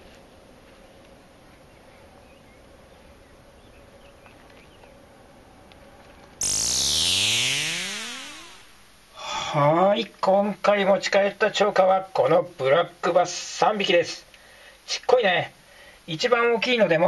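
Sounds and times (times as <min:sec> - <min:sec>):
small chirps: 0:06.4 - 0:08.8
electronic sweep sound effect: 0:06.4 - 0:09.0
thin steady tone: 0:06.4 - 0:09.0.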